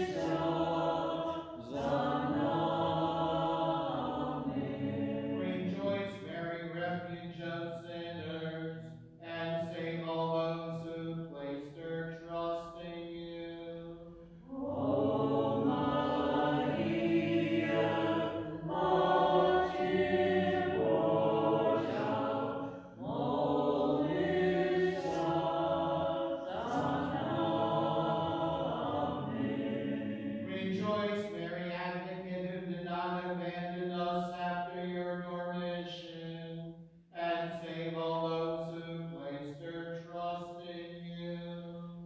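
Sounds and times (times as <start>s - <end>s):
voices chanting: 0.0s - 6.3s, 14.4s - 31.0s.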